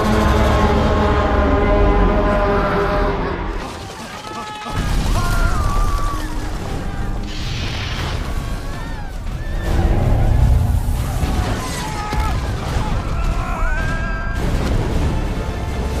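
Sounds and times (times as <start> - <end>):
orchestral music: 0.0 - 4.3, 14.4 - 16.0
rumble and crashing of stone: 3.6 - 16.0.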